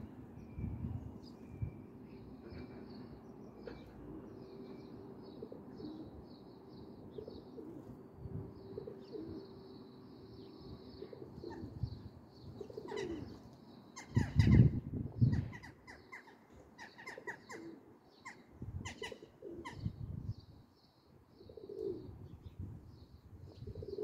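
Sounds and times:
pigeon cooing: 5.3 - 6.2, 7.1 - 8.0, 8.6 - 9.5, 11.0 - 11.9, 12.6 - 13.4, 16.8 - 19.9, 21.4 - 22.2, 23.5 - 24.0.

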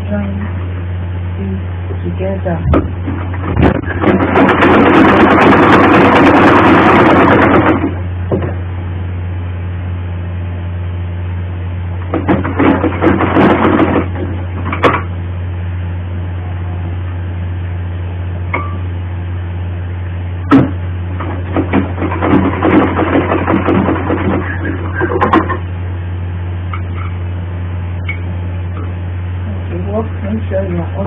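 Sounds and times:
steady low hum: 0.0 - 31.0
sewing machine clattering: 3.5 - 8.0, 21.5 - 25.6.

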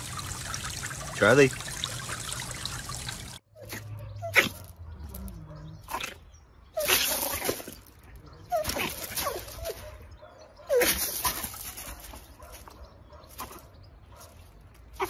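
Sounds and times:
animals whimpering and squealing: 3.6 - 10.0.

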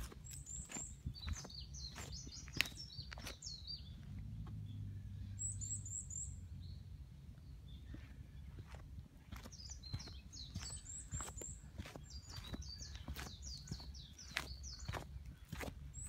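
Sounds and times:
footsteps on leaves: 0.0 - 4.2, 8.5 - 16.0
songbirds chirping: 0.0 - 16.0.

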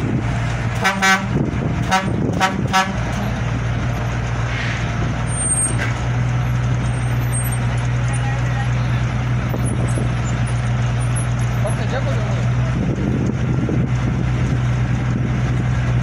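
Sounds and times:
crane engine drone: 0.0 - 16.0
short horn toots: 0.8 - 3.2.

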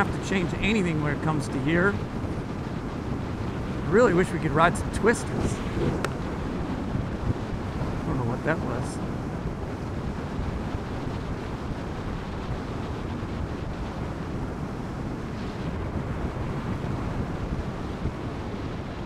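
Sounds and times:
wind rush on microphone: 0.0 - 19.0.

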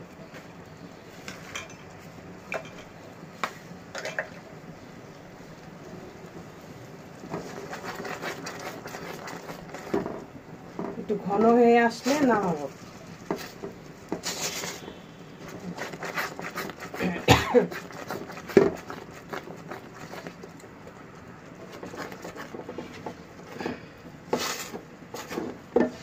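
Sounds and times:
sauce bubbling: 4.3 - 10.8, 12.6 - 25.7.

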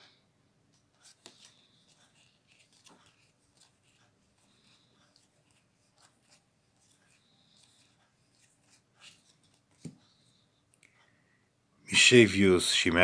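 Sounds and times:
trading cards rustling and sliding: 0.7 - 10.5.

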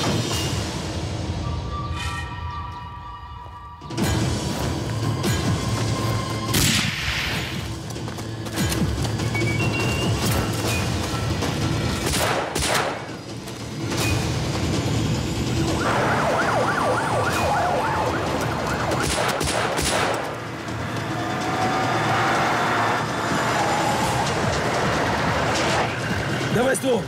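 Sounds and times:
police siren yelp: 15.7 - 19.4.

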